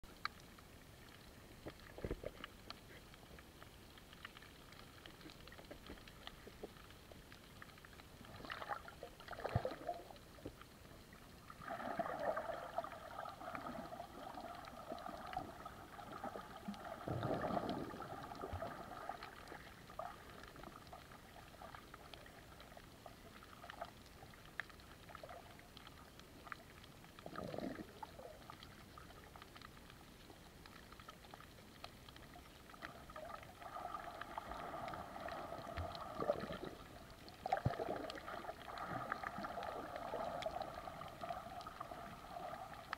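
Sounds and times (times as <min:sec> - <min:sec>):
muffled underwater sound: 0:00.0 - 0:42.9.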